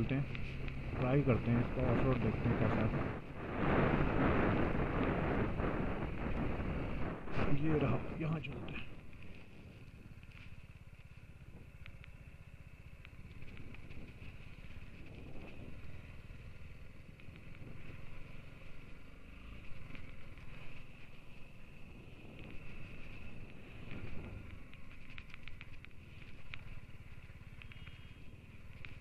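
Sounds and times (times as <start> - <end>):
motorcycle engine running: 0.0 - 29.0
light clicks: 0.2 - 1.0, 10.2 - 12.2, 13.0 - 15.6, 22.4 - 29.0.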